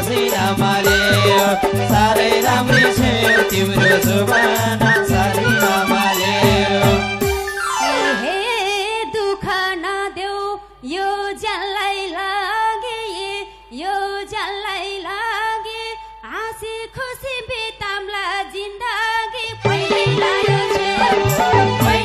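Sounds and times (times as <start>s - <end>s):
woman singing into a microphone: 0.0s - 7.2s, 8.0s - 22.0s
band instruments playing: 0.8s - 8.5s, 19.7s - 22.0s.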